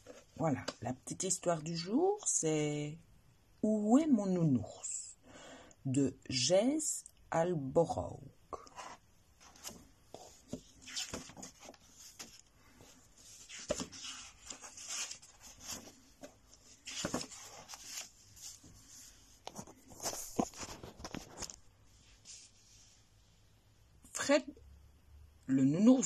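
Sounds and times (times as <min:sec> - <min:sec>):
paper pages rustling: 0:08.8 - 0:22.6.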